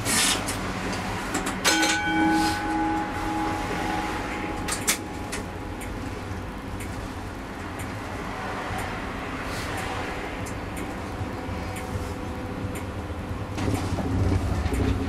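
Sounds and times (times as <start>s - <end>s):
tram rumble: 0.0s - 15.0s
tram motor whine: 0.7s - 15.0s
tram clunk: 1.3s - 7.8s.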